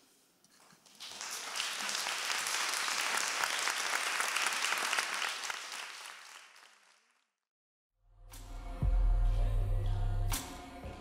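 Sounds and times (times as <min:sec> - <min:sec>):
audience applauding: 0:00.9 - 0:07.3.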